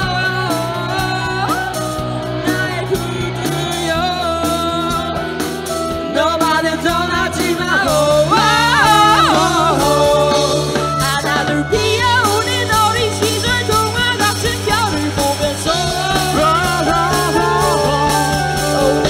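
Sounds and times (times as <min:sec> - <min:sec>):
bass guitar: 0:00.0 - 0:19.0
drums: 0:00.0 - 0:19.0
electric guitars: 0:00.0 - 0:19.0
person singing: 0:00.0 - 0:19.0.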